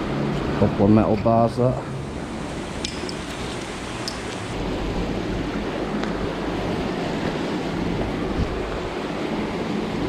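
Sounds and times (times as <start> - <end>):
low wind rumble: 1.4 - 10.0
wind on microphone: 7.8 - 9.2.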